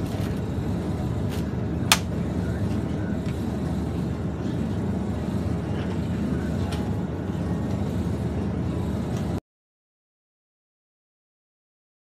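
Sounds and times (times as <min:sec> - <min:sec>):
refrigerated display cases humming: 0:00.0 - 0:09.4.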